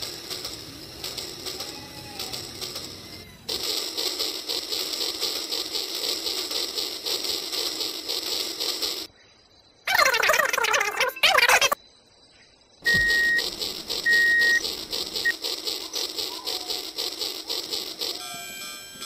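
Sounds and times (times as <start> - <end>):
fast rapid clicking: 0.0 - 9.1, 12.9 - 18.4
toy train motors whirring: 0.0 - 9.1, 12.9 - 19.0.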